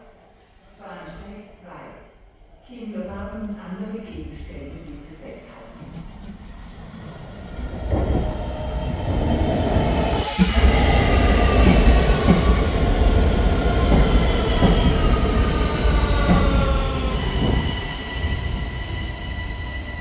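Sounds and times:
train wheels rumbling on track: 3.1s - 20.0s
train whining tones: 4.6s - 20.0s.

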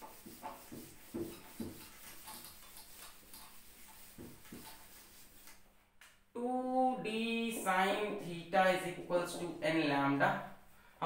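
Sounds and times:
eraser wiping a whiteboard: 0.0s - 5.7s.

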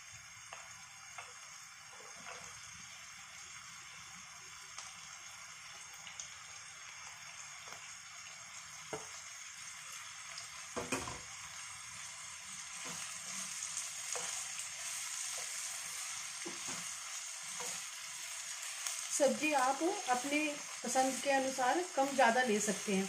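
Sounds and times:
vegetables sizzling in oil: 0.0s - 23.0s
spatula knocking and scraping pan: 16.4s - 17.9s.

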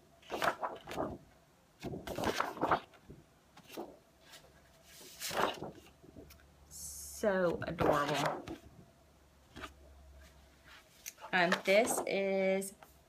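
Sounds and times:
paper rustling: 0.2s - 1.2s, 1.8s - 6.4s, 7.5s - 8.7s, 9.5s - 12.3s.

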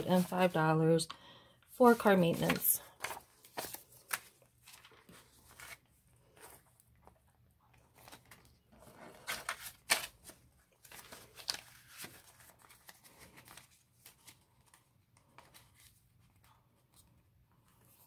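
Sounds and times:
paper banknotes rustling: 0.0s - 0.8s, 1.8s - 7.2s, 7.8s - 17.1s.

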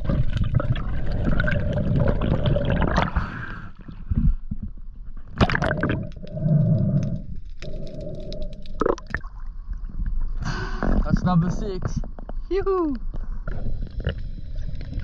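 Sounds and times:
water sloshing and gurgling: 0.0s - 15.0s.

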